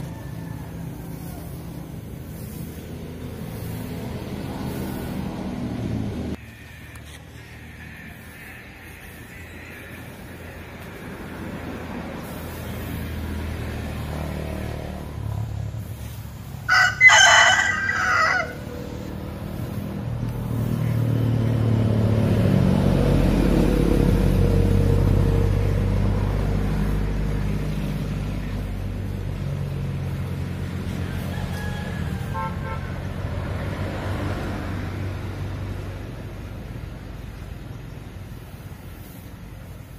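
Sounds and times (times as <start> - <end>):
rooster crowing: 0.0 - 1.9, 6.4 - 10.6, 16.6 - 19.2, 30.7 - 33.2
passing vehicle engine droning: 0.0 - 39.9.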